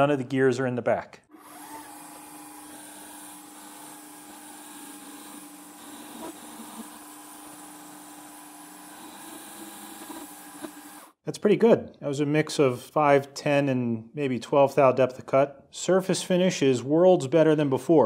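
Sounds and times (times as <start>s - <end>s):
lathe humming: 1.3s - 11.1s.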